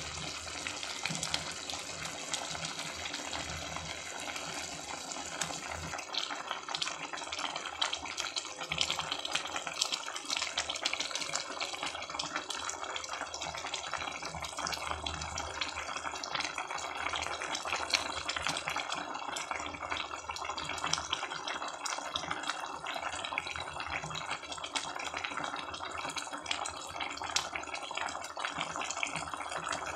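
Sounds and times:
soup boiling in a metal pot: 0:00.0 - 0:29.9.

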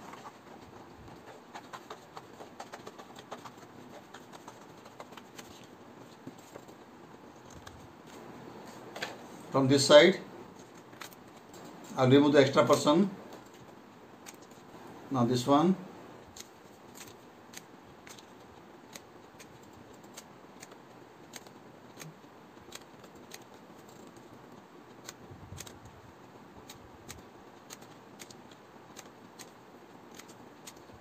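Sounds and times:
scissors snipping paper: 0:00.0 - 0:06.8, 0:10.6 - 0:11.5, 0:13.4 - 0:14.7, 0:16.2 - 0:25.9, 0:26.6 - 0:31.0.

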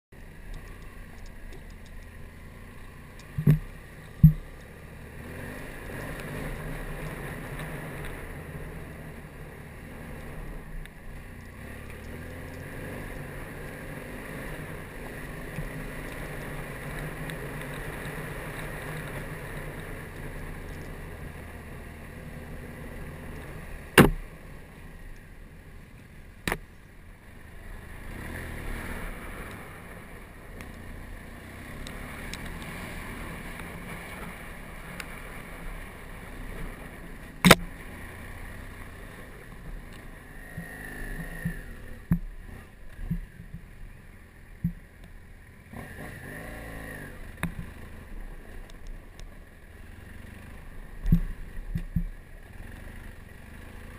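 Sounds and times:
motorcycle engine running: 0:00.1 - 0:53.9
sharp knocks: 0:03.4 - 0:04.5, 0:24.0 - 0:24.2.

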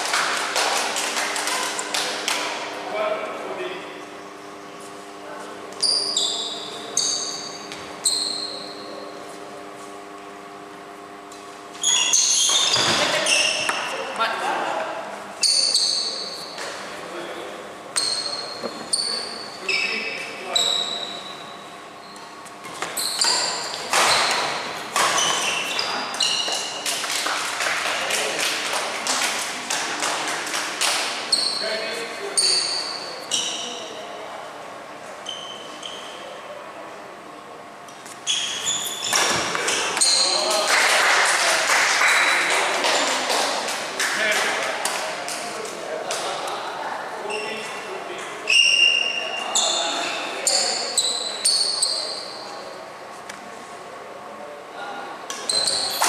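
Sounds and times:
shoes squeaking on court: 0:05.7 - 0:09.9, 0:11.7 - 0:14.1, 0:15.4 - 0:16.9, 0:18.0 - 0:26.9, 0:31.2 - 0:33.9, 0:35.2 - 0:36.4, 0:38.0 - 0:40.5, 0:47.2 - 0:47.8, 0:48.5 - 0:52.5, 0:55.4 - 0:56.0.

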